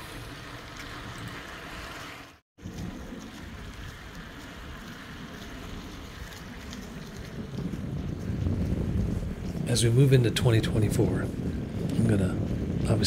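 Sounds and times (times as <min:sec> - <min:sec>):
wind rumbling on microphone: 0:02.6 - 0:13.0.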